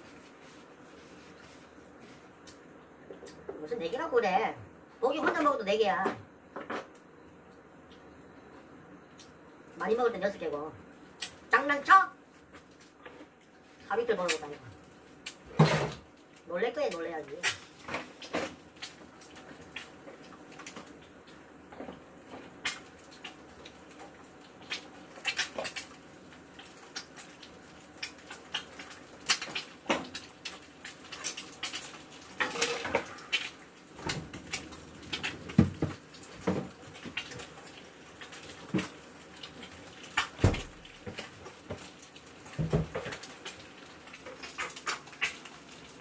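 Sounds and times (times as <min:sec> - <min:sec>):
spatula scraping in frying pan: 0:32.4 - 0:33.5.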